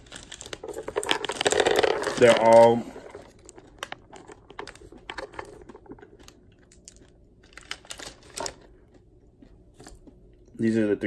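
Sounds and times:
candies clicking together: 0.2s - 8.7s.

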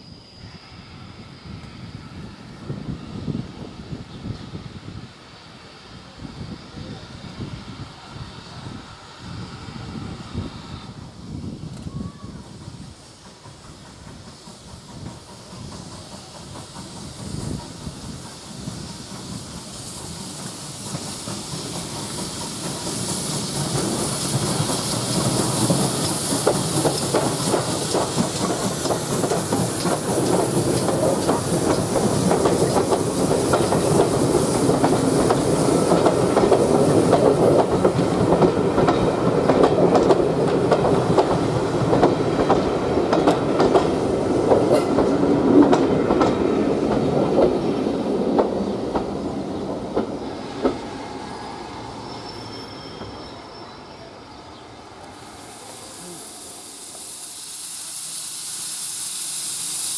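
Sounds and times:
steam locomotive: 0.0s - 59.9s
train wheels clattering over rail joints: 12.7s - 50.9s.

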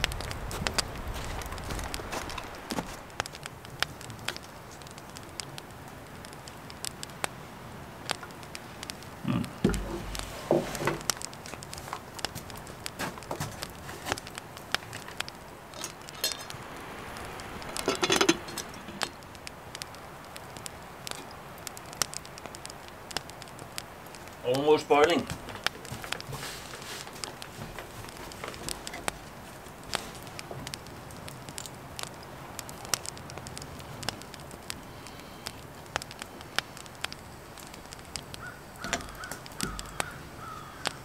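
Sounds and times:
campfire crackling: 0.0s - 41.0s
rustling knocks: 9.6s - 11.2s, 25.2s - 30.8s.

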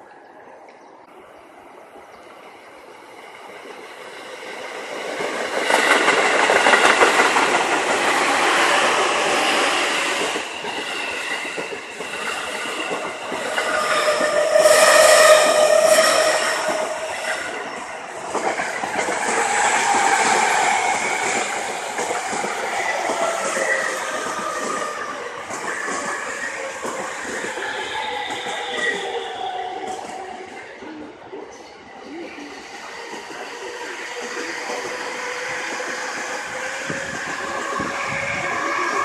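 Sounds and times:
train rushing past: 2.3s - 39.0s
train wheels clattering: 3.6s - 30.3s.

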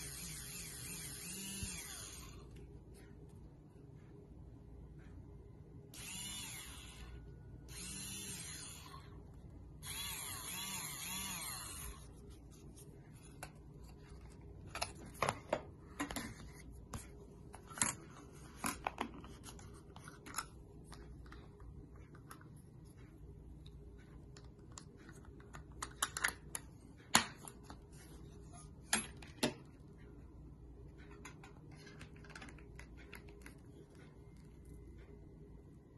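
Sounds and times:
milk frother whining: 0.0s - 2.5s, 6.0s - 12.2s.

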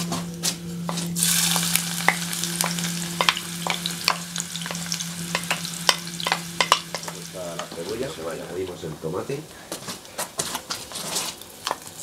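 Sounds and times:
onion sizzling in hot oil: 1.1s - 9.3s, 10.9s - 12.0s.

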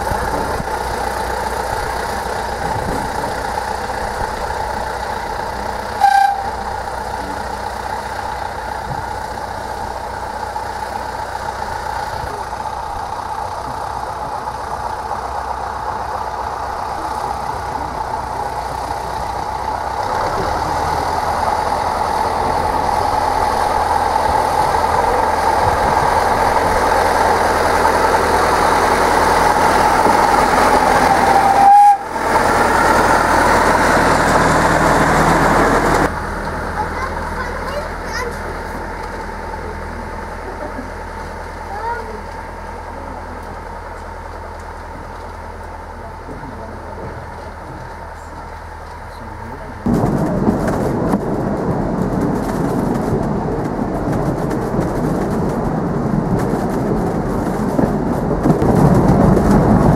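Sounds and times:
diesel locomotive: 0.0s - 59.9s
small train running: 0.0s - 59.9s
short train horn toot: 6.0s - 6.6s, 31.1s - 32.0s.

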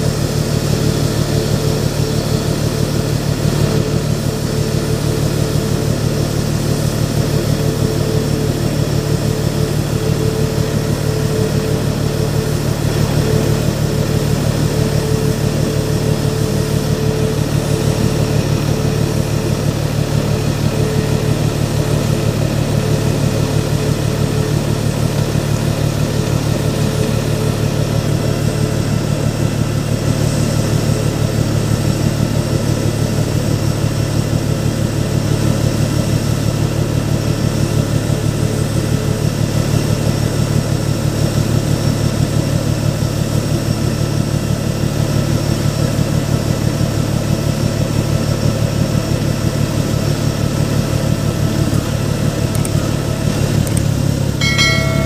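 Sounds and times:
engine idling: 0.0s - 34.2s.

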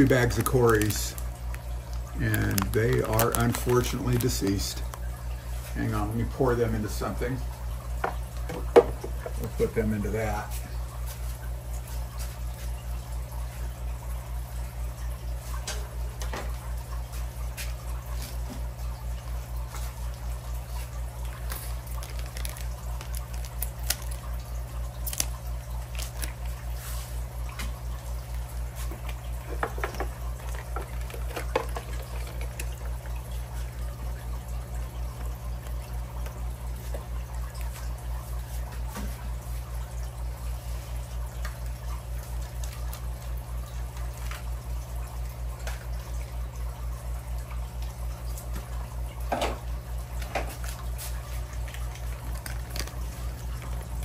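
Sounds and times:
plastic bags rustling: 0.0s - 4.8s, 21.3s - 27.2s
water trickling and dripping: 0.0s - 54.0s.

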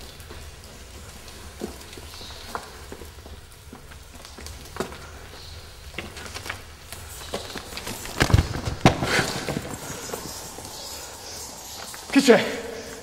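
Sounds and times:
heavy thumps: 8.0s - 10.3s.

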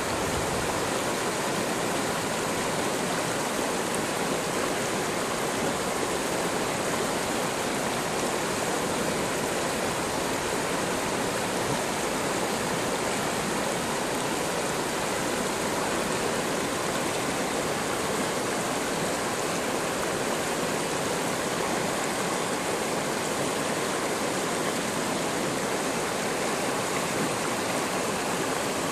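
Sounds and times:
water rushing over rocks: 0.0s - 28.9s.

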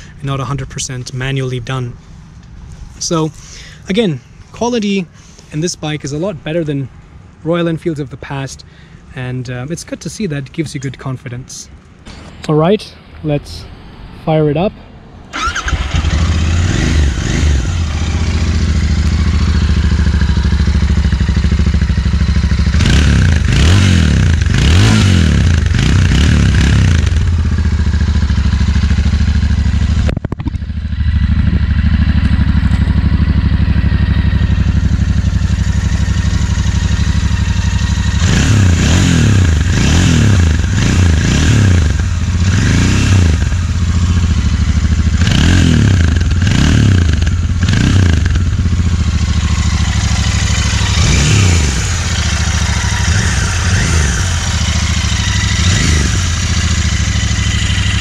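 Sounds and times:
engine revving: 15.3s - 58.0s
motorcycle engine idling: 15.3s - 58.0s.

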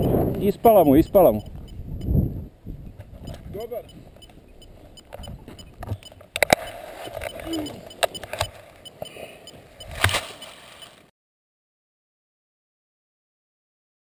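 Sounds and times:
buckle clicks and knocks: 5.0s - 9.1s.

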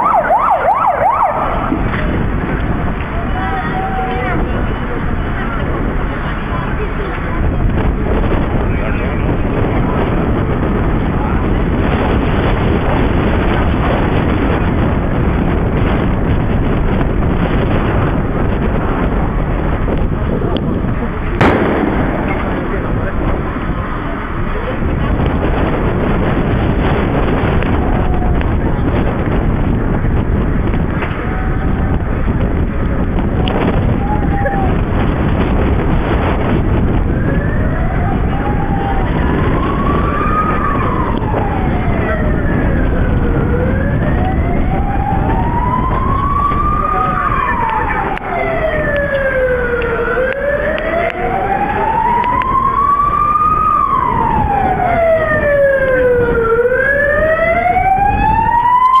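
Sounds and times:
emergency siren wailing: 0.0s - 59.0s
wind buffeting microphone: 0.0s - 59.0s.

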